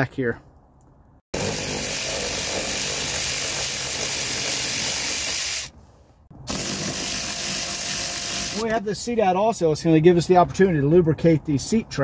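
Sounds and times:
electric ratchet running: 1.4 - 5.7, 6.4 - 8.7.

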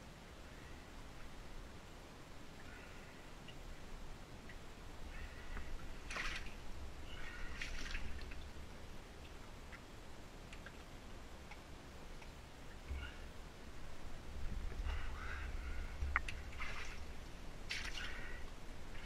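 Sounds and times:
water dripping and splashing: 5.4 - 19.0
loud water splashes: 16.4 - 17.1.

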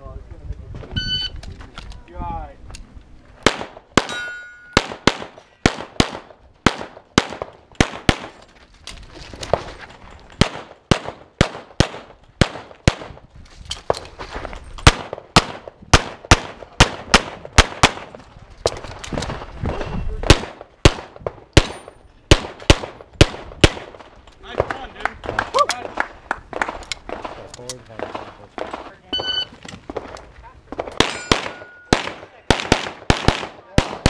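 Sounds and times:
pistol shots: 3.4 - 8.4, 10.4 - 13.1, 20.2 - 24.0, 30.8 - 34.0.

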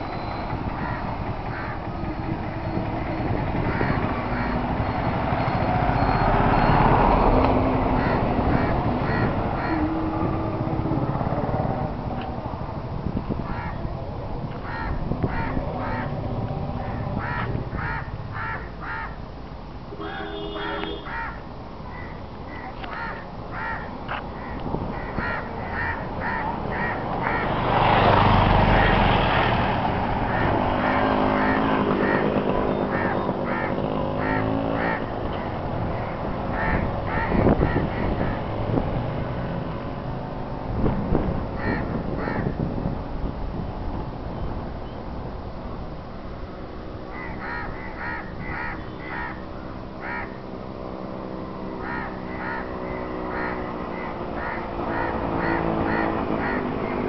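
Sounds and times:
birds calling: 0.0 - 10.1, 14.6 - 16.2, 16.8 - 19.2, 20.2 - 29.2, 30.3 - 38.7, 41.6 - 42.6, 47.1 - 50.4, 51.7 - 57.0
vehicle passing close by: 0.0 - 19.1, 22.8 - 44.8, 47.2 - 57.0
engine drone: 0.0 - 44.3, 45.3 - 57.0.

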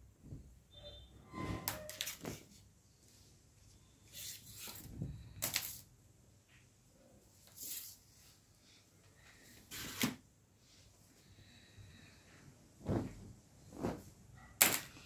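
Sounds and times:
fabric rustling and swishing: 12.1 - 15.0.

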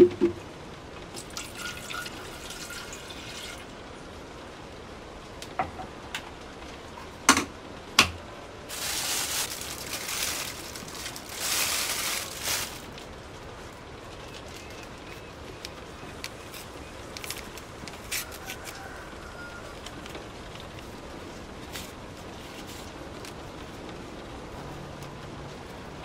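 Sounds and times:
water pouring: 1.1 - 3.8.

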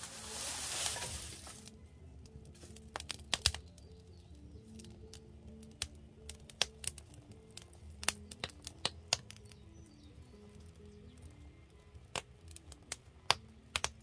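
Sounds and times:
quiet background music: 0.0 - 14.0
wood fire crackling: 0.0 - 14.0
sharp pops from fire: 2.4 - 4.0, 4.6 - 10.0, 12.0 - 14.0.

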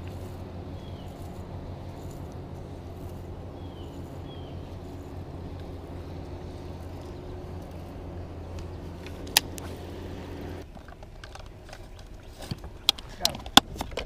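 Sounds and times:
boat motor humming: 0.0 - 13.2.

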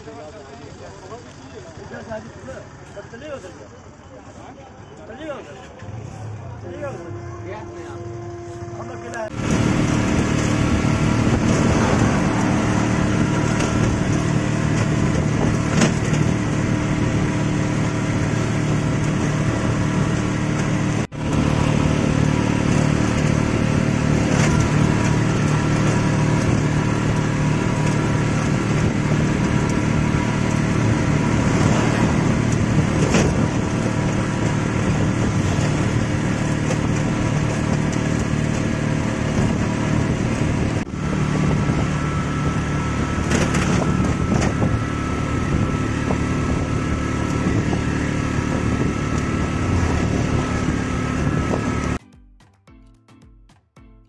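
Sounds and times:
motorcycle engine cruising: 0.0 - 52.0
wind and road rush: 0.0 - 52.0.

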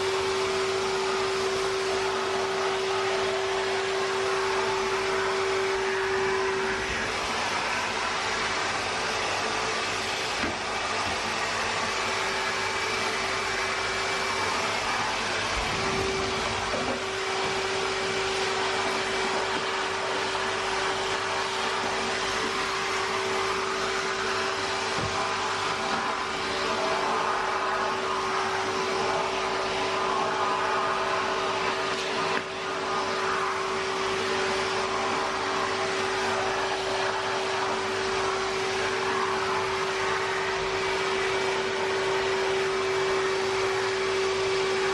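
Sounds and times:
vacuum cleaner running: 0.0 - 44.9.

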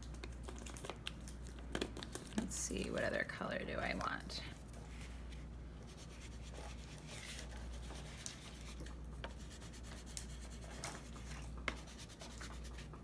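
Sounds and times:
pastel scratching on cardboard: 5.9 - 12.9.

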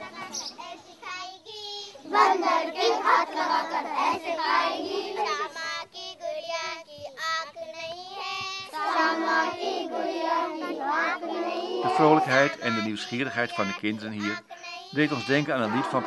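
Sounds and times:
children singing in chorus: 1.5 - 7.4, 8.0 - 13.0, 14.9 - 16.0.

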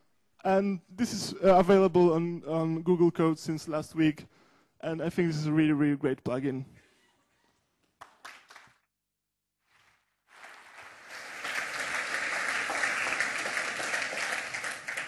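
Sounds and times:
audience applauding: 8.0 - 8.8, 10.3 - 15.0.

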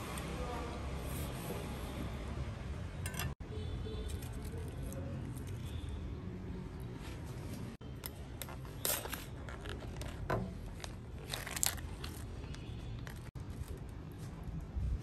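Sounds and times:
scraping and crunching of snails: 8.1 - 13.8.

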